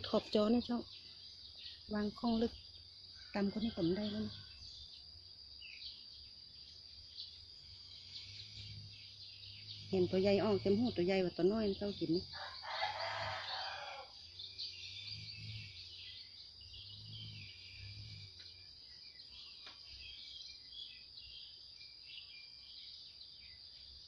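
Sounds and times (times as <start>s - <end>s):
high insect drone: 0.0s - 24.0s
small birds chirping: 0.0s - 24.0s.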